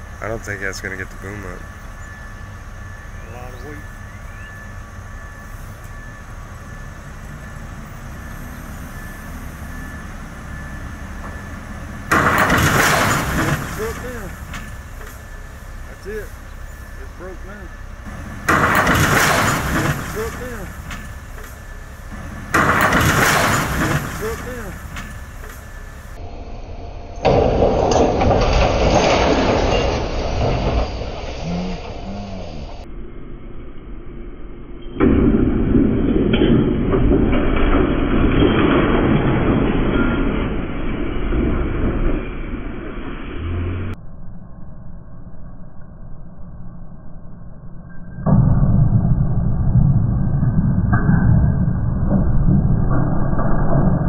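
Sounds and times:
diesel engine running: 0.0s - 33.0s, 39.0s - 44.0s
faint high whine: 0.0s - 35.2s, 41.9s - 51.2s.

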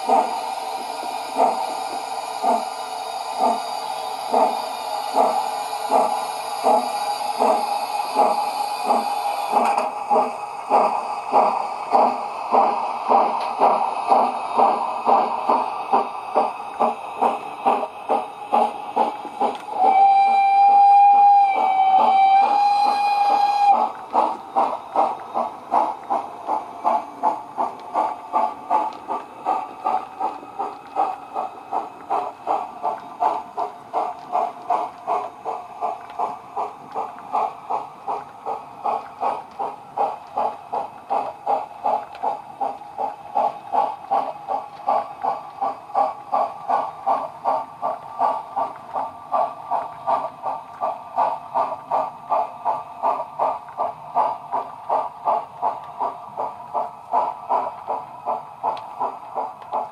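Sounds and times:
model locomotive steam chuffs: 0.0s - 59.9s
locomotive whistle: 19.7s - 23.8s.

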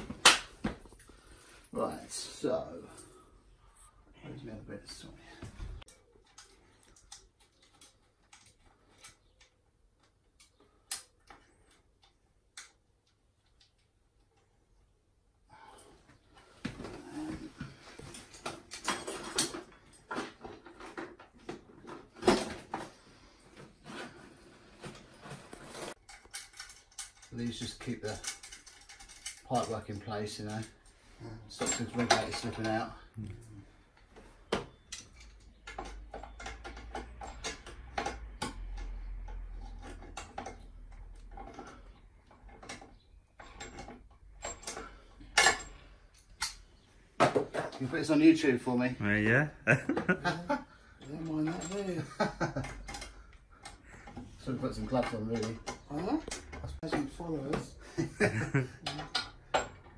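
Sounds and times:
tools and metal fittings clattering: 16.6s - 33.2s, 33.9s - 48.2s, 50.8s - 59.9s.

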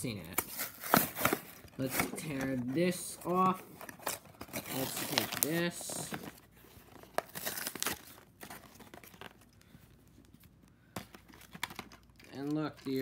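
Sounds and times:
cardboard box tearing: 0.4s - 2.7s, 7.2s - 8.8s.

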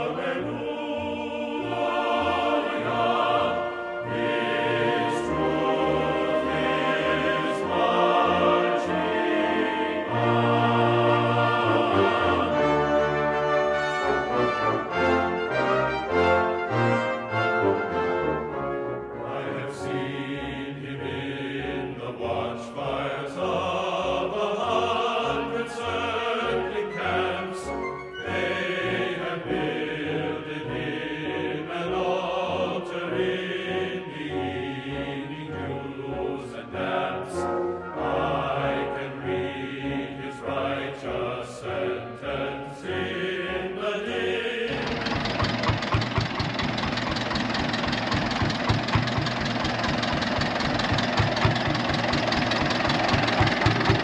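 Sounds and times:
choral and orchestral music: 0.0s - 54.0s
tractor engine idling: 44.7s - 54.0s.

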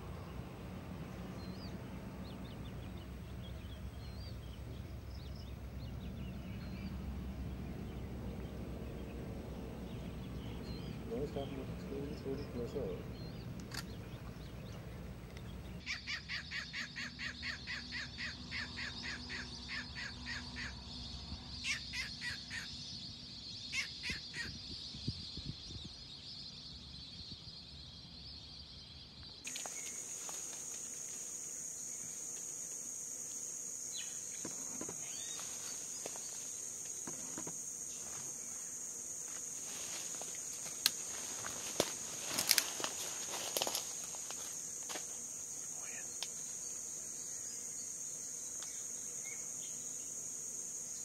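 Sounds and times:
shrill insect drone: 15.8s - 24.5s, 29.5s - 51.0s
high insect buzz: 29.3s - 51.0s.

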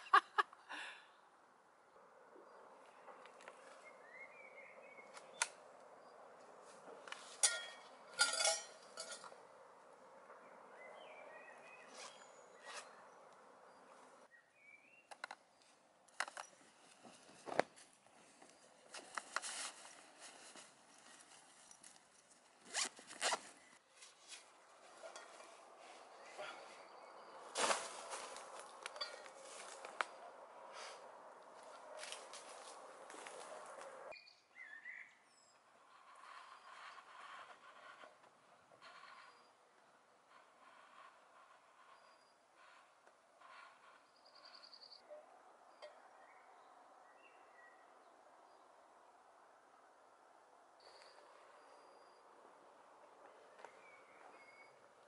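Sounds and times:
small metal clinks: 7.4s - 9.3s
zipper pulled: 11.9s - 13.0s, 22.6s - 23.7s.

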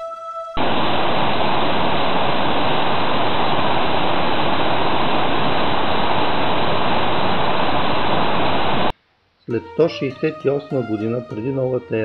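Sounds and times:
waterfall rushing over rocks: 0.6s - 8.9s.

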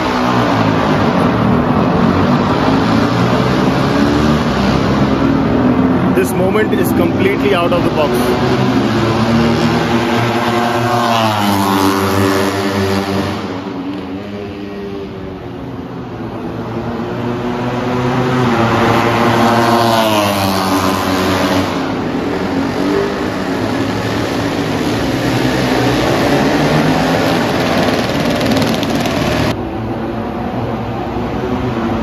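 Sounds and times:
racing motorcycles passing: 0.0s - 32.0s.

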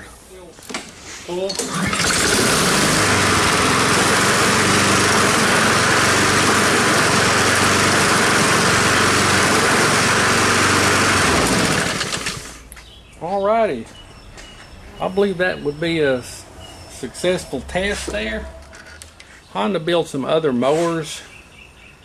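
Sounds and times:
lawn mower engine running: 1.4s - 12.6s.

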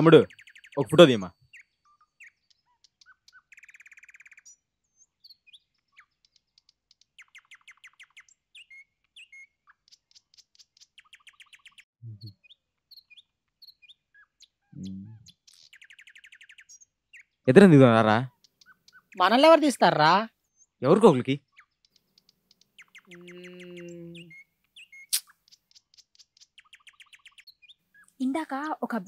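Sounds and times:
bird trills: 0.0s - 17.5s, 18.3s - 20.8s, 21.4s - 29.0s
small birds chirping: 0.0s - 29.0s
brief low sounds: 12.0s - 12.3s, 14.8s - 15.2s.

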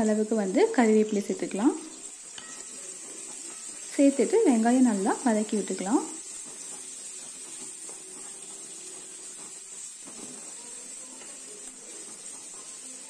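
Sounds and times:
onions sizzling in oil: 0.0s - 13.0s
wooden spatula scraping: 5.4s - 13.0s.

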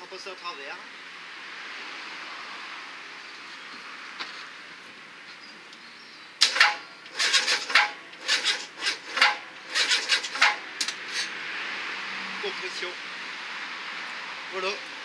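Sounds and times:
seized engine grinding on starter: 6.4s - 11.3s.

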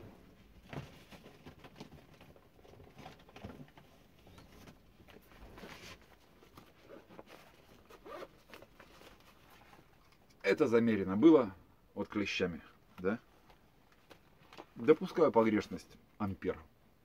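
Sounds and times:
person handling fabric case: 0.4s - 10.3s.

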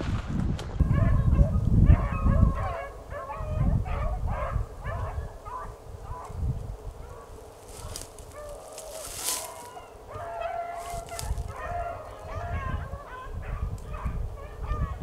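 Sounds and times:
low rumble on microphone: 0.0s - 7.1s
hounds baying: 0.8s - 15.0s.

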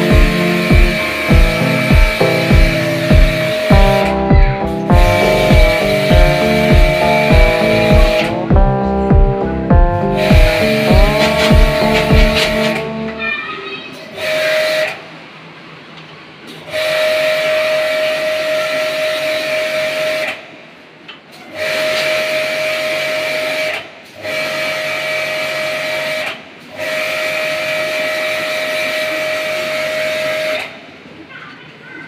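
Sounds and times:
water spray hissing: 0.0s - 8.5s, 10.0s - 13.0s
pressure washer pump whine: 0.0s - 13.2s, 14.2s - 15.1s, 21.6s - 30.8s.

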